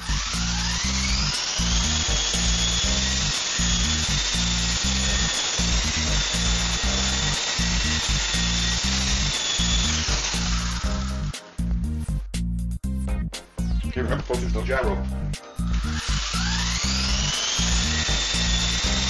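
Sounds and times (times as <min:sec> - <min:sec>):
toy helicopter motor whine: 0:00.0 - 0:11.6, 0:14.1 - 0:19.0
music with steady beat: 0:00.0 - 0:19.0.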